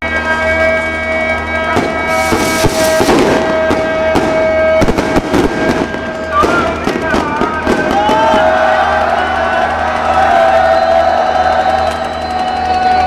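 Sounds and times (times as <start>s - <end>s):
fireworks crackling and banging: 0.1s - 10.0s.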